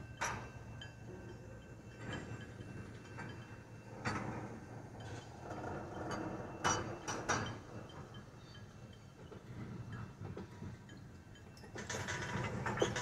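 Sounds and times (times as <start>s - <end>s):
tank cars rolling rumble: 0.0s - 13.0s
metallic knocks from wheels: 4.0s - 8.5s, 9.2s - 13.0s.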